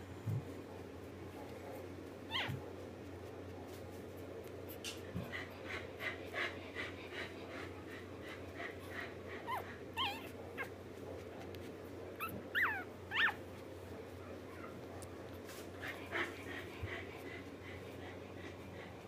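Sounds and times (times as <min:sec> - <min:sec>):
puppy squeaking and whimpering: 0:02.2 - 0:02.7, 0:09.4 - 0:10.8, 0:12.1 - 0:13.6.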